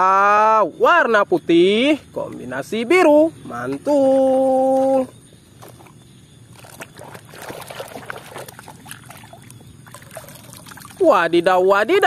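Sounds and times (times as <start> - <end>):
water sloshing in a basin: 5.5 - 11.4.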